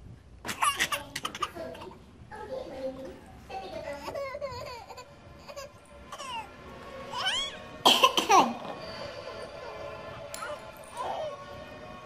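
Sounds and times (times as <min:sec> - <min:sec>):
baby coughing: 0:00.5 - 0:02.0, 0:04.1 - 0:06.5, 0:07.2 - 0:08.8
baby squealing: 0:04.1 - 0:06.5, 0:07.1 - 0:07.6.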